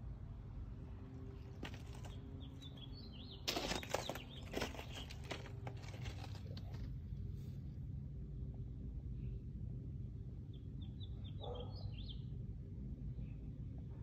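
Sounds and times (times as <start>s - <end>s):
low steady rumble: 0.0s - 14.0s
rustling and crackling clicks: 3.5s - 6.9s.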